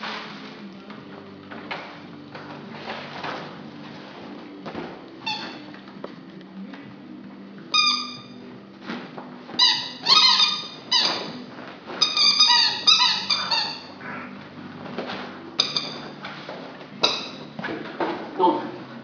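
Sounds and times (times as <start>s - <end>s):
squeaky dog toy squeaks: 5.2s - 5.7s, 7.7s - 8.4s, 9.6s - 11.4s, 12.0s - 14.0s, 15.6s - 16.2s.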